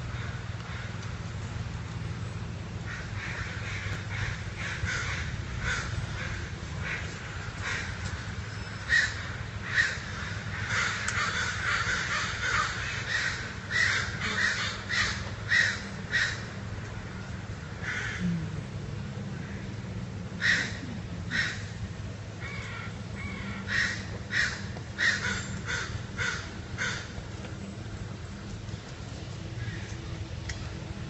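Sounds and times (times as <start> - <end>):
steady low hum: 0.0 - 31.0
crows cawing: 0.1 - 1.0, 2.8 - 18.2, 20.4 - 21.7, 22.4 - 27.2, 29.6 - 29.9.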